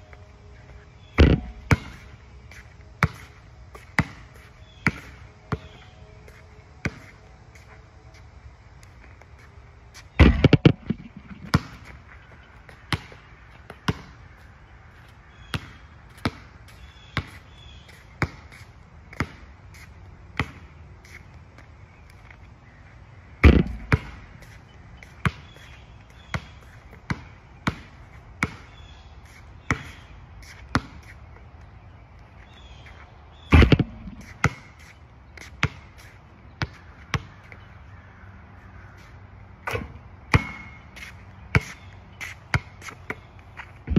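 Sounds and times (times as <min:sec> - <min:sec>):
basketball bouncing on asphalt: 0:00.6 - 0:07.8, 0:08.8 - 0:22.5, 0:23.3 - 0:43.9
heavy ball hits: 0:01.2 - 0:02.0, 0:10.2 - 0:11.8, 0:23.4 - 0:24.3, 0:33.5 - 0:34.7, 0:39.6 - 0:40.8.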